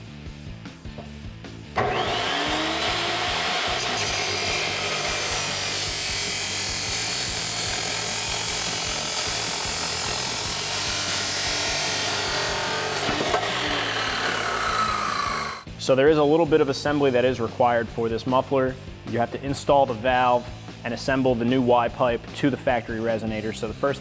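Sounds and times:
chop saw cutting metal pipe: 1.8 - 15.7
saw motor whine: 1.8 - 15.7.

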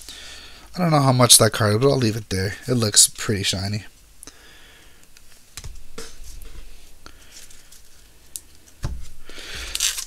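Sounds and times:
cards rustling: 7.2 - 10.0.

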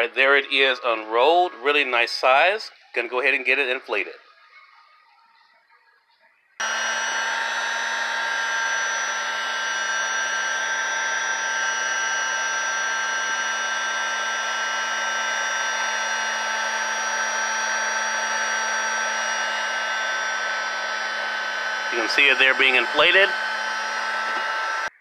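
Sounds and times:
electric air pump whirring: 6.6 - 25.0.

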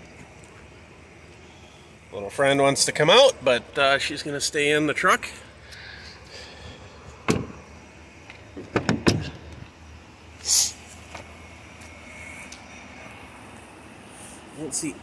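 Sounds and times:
engine idling hum: 0.0 - 15.0
truck door knocking shut: 7.3 - 7.6, 8.6 - 9.3
short hiss: 10.4 - 11.0.

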